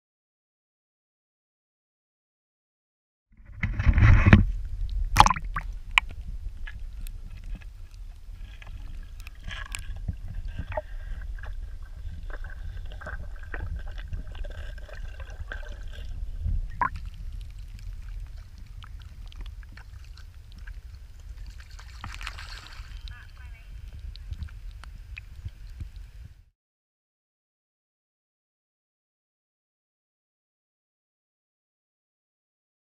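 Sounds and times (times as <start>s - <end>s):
low rumble: 3.4s - 26.5s
water splashing against camera: 3.5s - 26.4s
muffled underwater gurgles: 3.6s - 26.4s.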